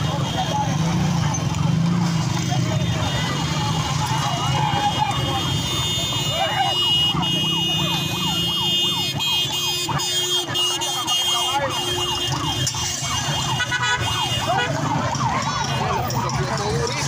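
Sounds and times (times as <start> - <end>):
siren yelping: 3.8 - 17.0.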